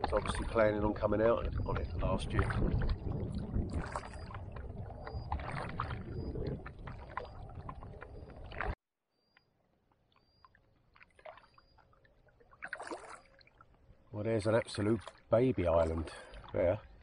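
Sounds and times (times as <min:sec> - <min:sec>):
water drips: 0:00.0 - 0:08.8, 0:10.0 - 0:17.0
water splashing around kayak: 0:00.0 - 0:08.8, 0:10.2 - 0:17.0
wind buffeting microphone: 0:00.0 - 0:08.8.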